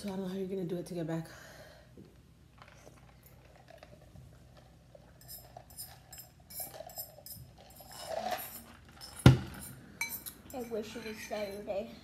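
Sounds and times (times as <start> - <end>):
utensils clinking against bowl: 5.1 - 12.0.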